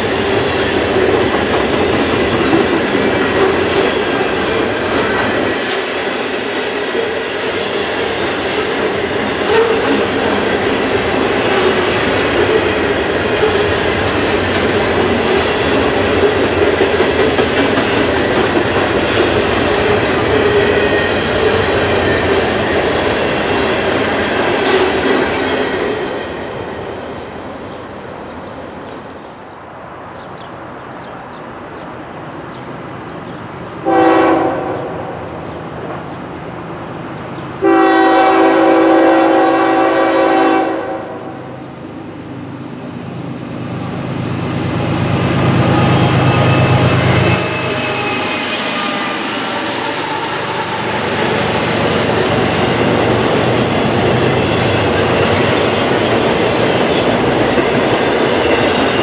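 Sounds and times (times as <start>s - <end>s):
train wheels clattering on rails: 0.0s - 27.2s, 44.5s - 59.0s.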